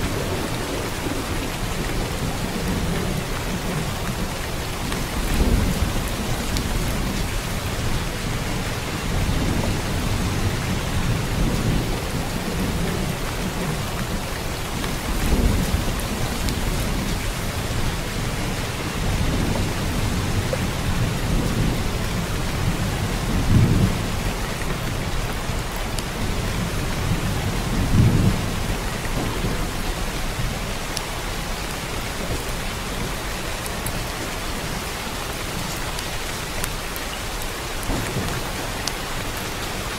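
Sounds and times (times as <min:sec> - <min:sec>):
thunder rolling: 0:00.0 - 0:25.0, 0:37.8 - 0:39.9
steady rain: 0:00.0 - 0:39.9.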